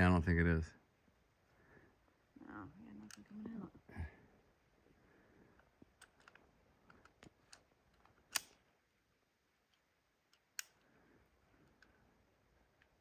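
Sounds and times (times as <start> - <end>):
sharp snaps: 8.3 - 8.6.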